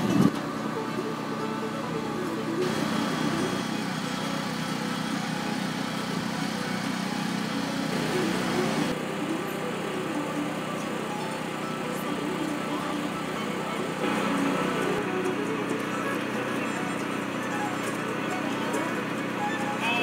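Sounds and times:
engine running steadily: 0.0s - 20.0s.

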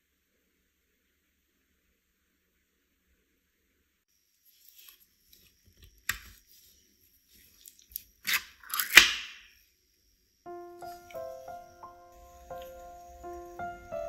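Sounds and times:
can lid cracking and tearing: 7.6s - 9.4s.

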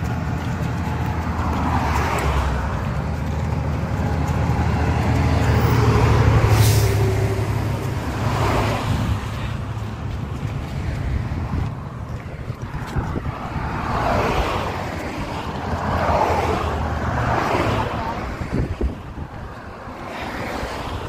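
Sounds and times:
highway traffic rumble: 0.0s - 21.0s
tyre and wind hiss: 5.5s - 16.0s, 17.5s - 21.0s.

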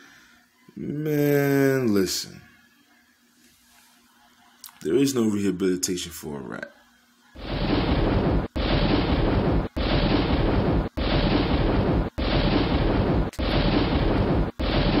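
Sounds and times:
looped thunder: 7.4s - 15.0s.

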